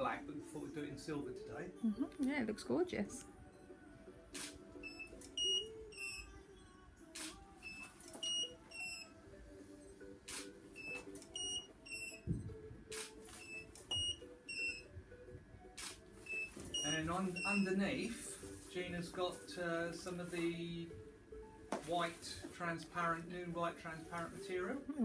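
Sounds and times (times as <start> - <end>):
camera shutter: 4.4 - 4.6, 7.1 - 8.4, 10.3 - 10.5, 12.9 - 14.0, 15.8 - 16.0
studio flash firing: 4.4 - 5.6.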